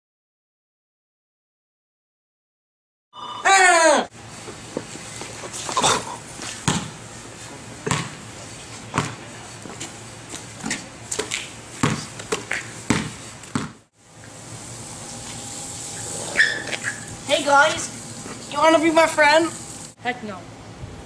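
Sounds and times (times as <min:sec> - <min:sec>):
basketball bouncing: 0:06.6 - 0:07.0, 0:07.8 - 0:08.2, 0:08.9 - 0:09.2, 0:10.6 - 0:13.8.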